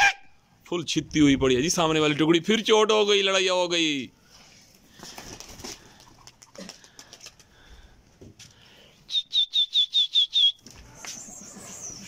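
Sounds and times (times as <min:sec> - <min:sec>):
person whistling sharp notes: 0:09.1 - 0:10.6.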